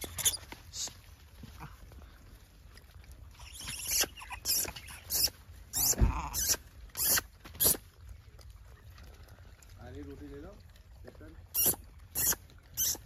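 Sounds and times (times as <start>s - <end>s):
monkeys squealing: 0.0s - 0.4s, 3.4s - 7.8s, 11.5s - 13.0s.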